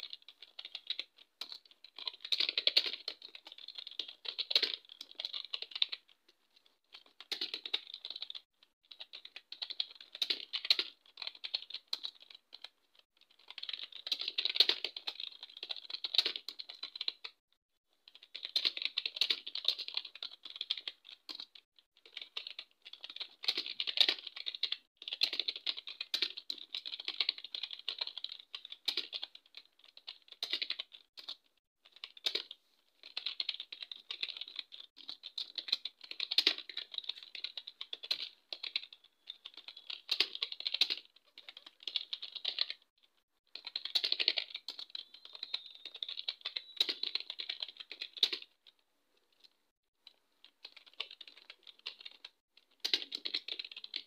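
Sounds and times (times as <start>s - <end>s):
keyboard typing clicks: 43.6s - 48.5s, 50.7s - 54.0s.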